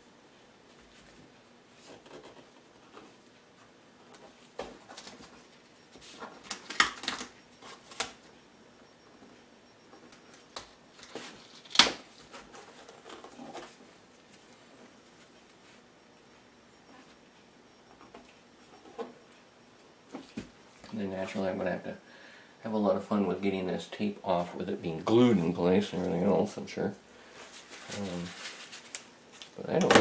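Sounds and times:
tape rustling and clicking: 6.1 - 8.3, 10.0 - 13.8, 27.6 - 29.6.

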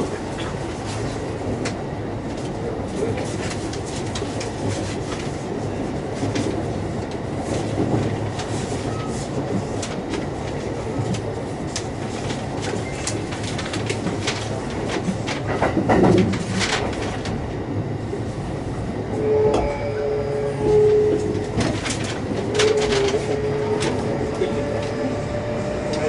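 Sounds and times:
train wheels rumbling on rails: 0.0 - 26.0
traction motor whine: 19.2 - 26.0.

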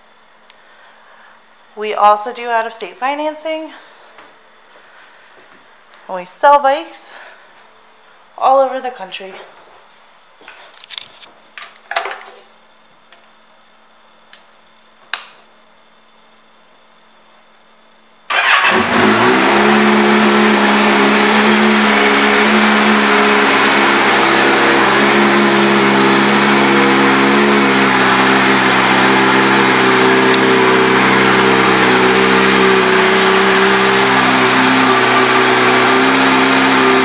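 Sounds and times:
motorcycle engine starting and idling: 18.3 - 37.0.

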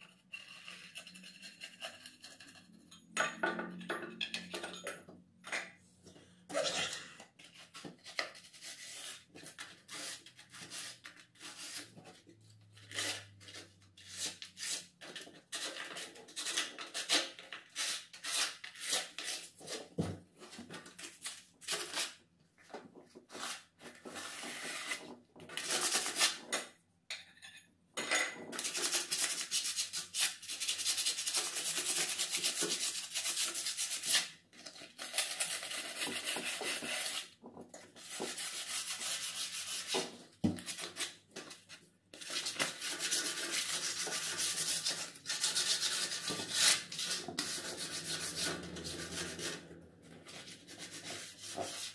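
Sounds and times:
sandpaper rasping on wood: 38.1 - 40.0, 42.4 - 49.5.

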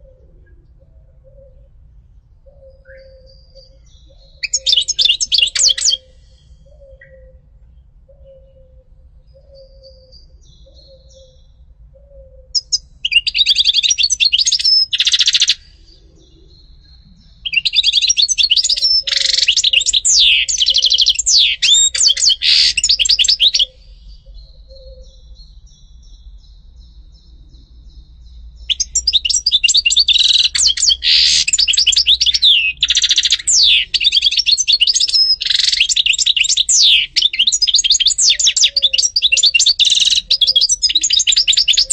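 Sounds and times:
goldfinch twittering song: 2.8 - 6.1, 12.5 - 15.8, 17.4 - 26.5, 28.3 - 41.9.

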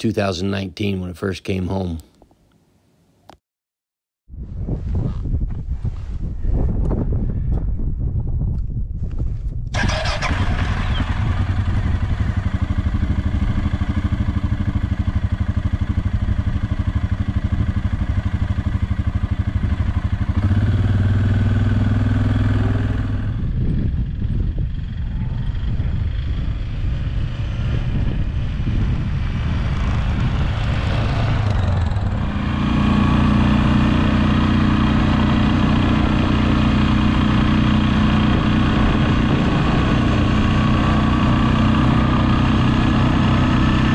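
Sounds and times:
quad bike engine running: 9.7 - 43.9.

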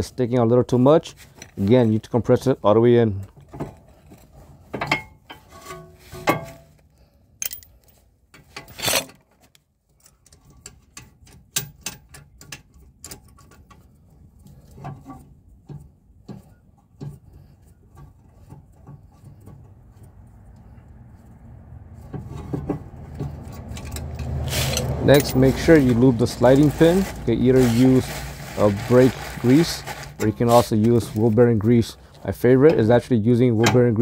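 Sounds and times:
metal knocks and scrapes: 3.3 - 6.8, 10.1 - 32.8.

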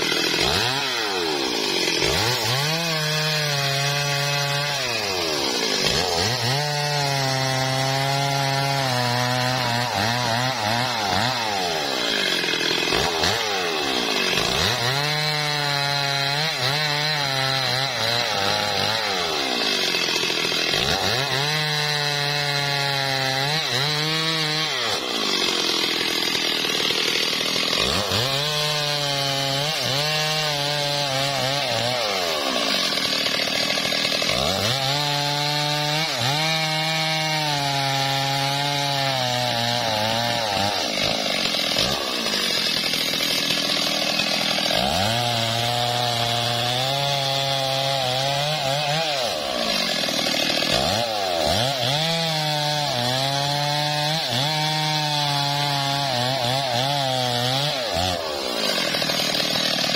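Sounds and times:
chainsaw cutting wood: 0.0 - 59.9.

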